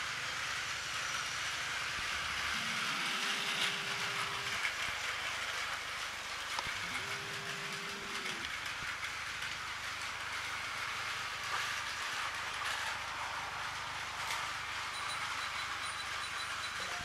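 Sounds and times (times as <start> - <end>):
toy train motors whirring: 0.0 - 17.0
wheels clattering over track joints: 3.4 - 17.0.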